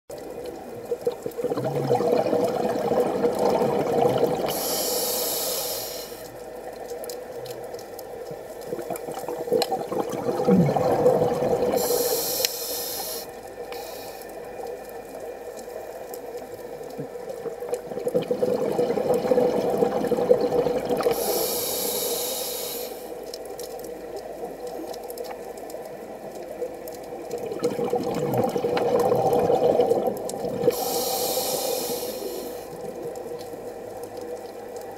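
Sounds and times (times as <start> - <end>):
exhaled bubbles rumbling: 0.1 - 4.6, 7.4 - 12.1, 16.8 - 21.5, 24.0 - 31.3
air hissing through regulator: 4.5 - 6.3, 11.8 - 14.3, 21.1 - 23.2, 30.7 - 32.7.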